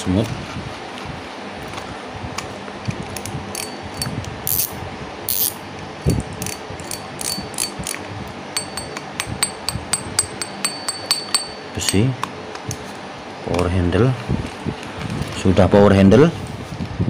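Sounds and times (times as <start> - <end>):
fishing reel mechanical clicks: 3.5 - 5.6, 6.4 - 8.0
sharp ringing clicks: 3.6 - 5.6, 6.4 - 8.0, 8.6 - 12.3.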